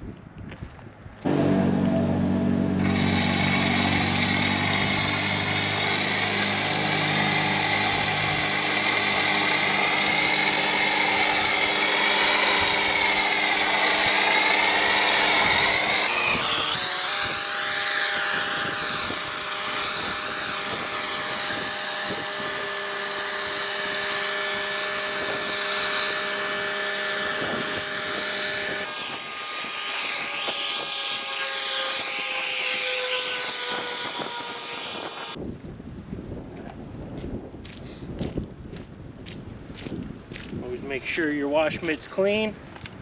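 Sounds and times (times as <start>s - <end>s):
pressure washer motor hum: 1.3s - 35.4s.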